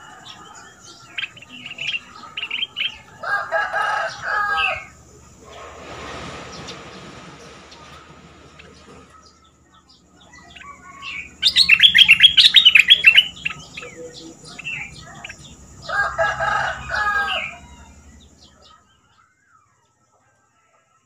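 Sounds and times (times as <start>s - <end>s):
bird chattering song: 0.0s - 5.8s, 6.4s - 20.0s
low drawn-out bird call: 0.0s - 19.2s.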